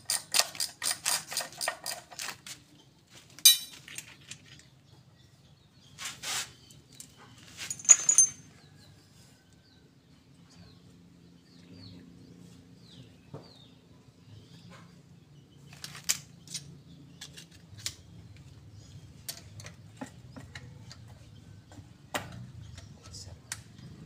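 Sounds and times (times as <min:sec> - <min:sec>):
hand tool clinking on metal: 0:03.4 - 0:04.0, 0:07.6 - 0:08.5.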